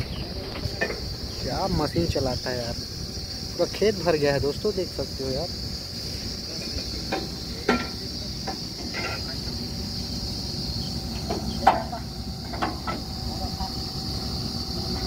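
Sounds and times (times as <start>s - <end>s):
drilling rig engine humming: 0.0s - 15.0s
insect chirring: 0.0s - 15.0s
sharp metallic knocks: 7.0s - 9.4s, 11.1s - 13.1s.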